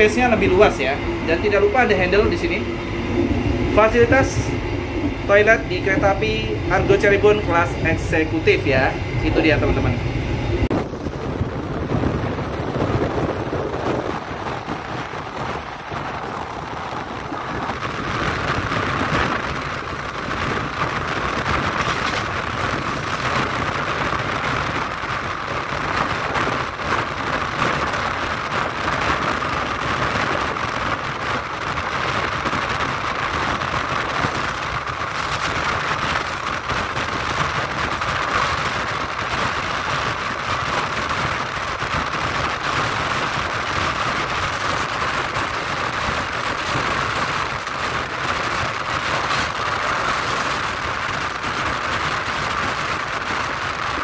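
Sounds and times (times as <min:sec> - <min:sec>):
train coach rolling on track: 0:00.0 - 0:54.0.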